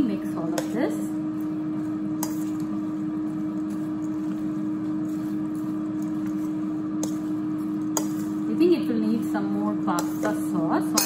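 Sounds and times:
air fryer humming: 0:00.0 - 0:11.0
pasta salad squishing: 0:00.5 - 0:08.5
spoon clinking on metal bowl: 0:10.0 - 0:11.0.

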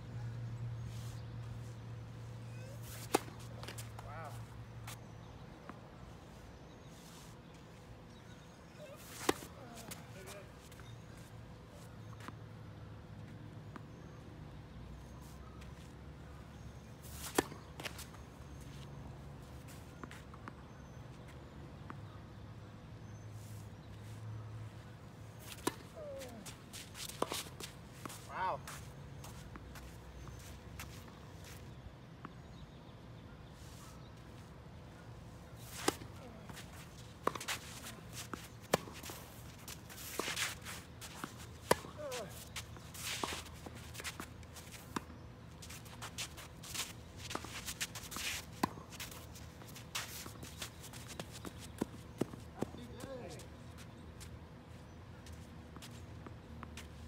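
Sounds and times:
shoes scuffing on court: 0:02.5 - 0:05.2, 0:08.3 - 0:12.4, 0:25.3 - 0:31.7, 0:35.6 - 0:54.4, 0:55.2 - 0:57.0.

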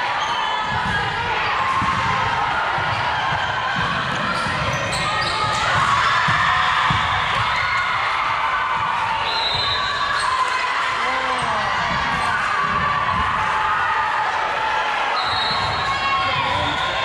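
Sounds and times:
murmur of voices echoing: 0:10.4 - 0:17.0.

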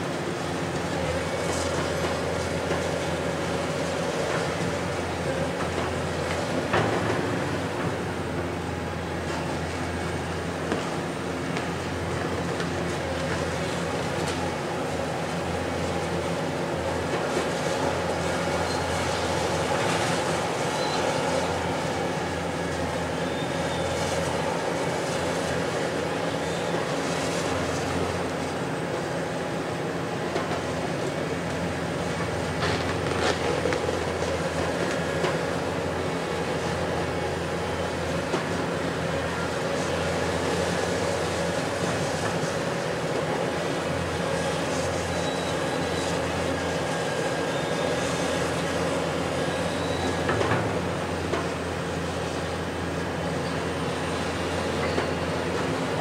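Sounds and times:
excavator diesel engine and hydraulics: 0:00.0 - 0:56.0
faint high squeal: 0:18.6 - 0:19.2, 0:20.7 - 0:21.6, 0:23.2 - 0:24.0, 0:45.0 - 0:46.2, 0:49.5 - 0:50.3, 0:54.8 - 0:55.3.

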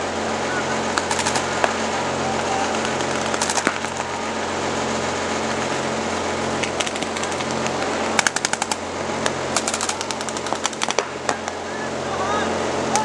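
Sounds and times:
steady low hum: 0:00.0 - 0:13.0
paintball markers firing pops: 0:01.0 - 0:01.8, 0:02.7 - 0:04.0, 0:06.7 - 0:11.1.

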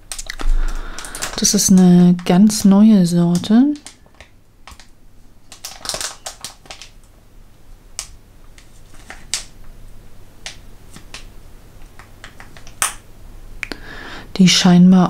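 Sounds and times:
plastic bag crackling: 0:00.0 - 0:02.7, 0:03.4 - 0:07.1, 0:08.0 - 0:09.6.

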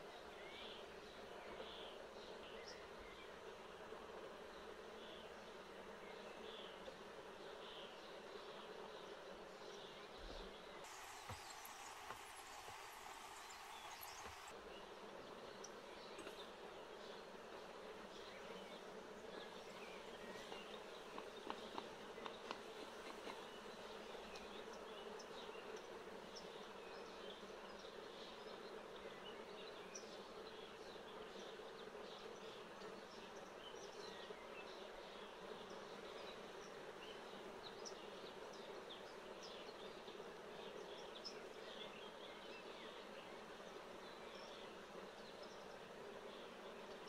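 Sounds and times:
bee colony buzzing: 0:10.9 - 0:14.5.

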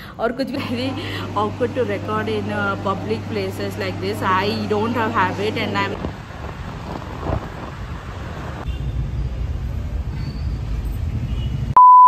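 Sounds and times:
passing vehicles and road rumble: 0:01.2 - 0:11.8
loud high beep: 0:11.8 - 0:12.0.

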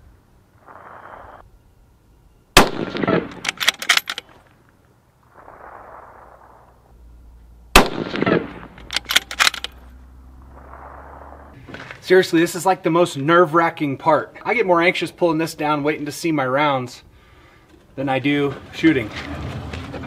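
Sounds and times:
rifle shots: 0:02.6 - 0:04.4, 0:07.7 - 0:09.8
sharp echoing cracks: 0:02.6 - 0:04.7, 0:07.8 - 0:09.8.

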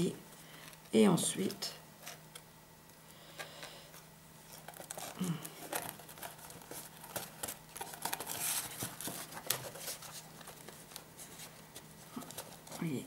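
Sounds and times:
paper rustling: 0:04.4 - 0:13.0.

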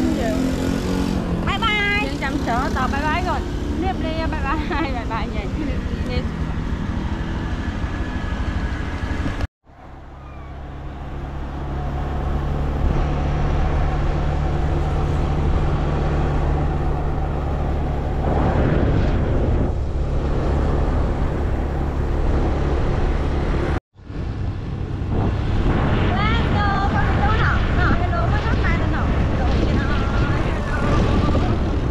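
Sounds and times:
rushing air: 0:09.0 - 0:31.9.

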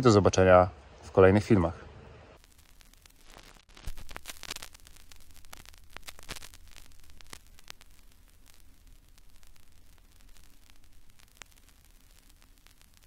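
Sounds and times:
low steady hum: 0:00.0 - 0:13.0
faint crackling and clicks: 0:02.4 - 0:13.0.

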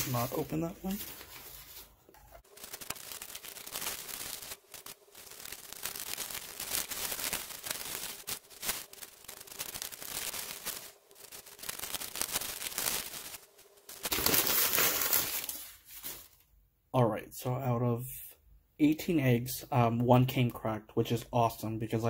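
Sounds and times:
newspaper rustling and crinkling: 0:00.0 - 0:16.5.

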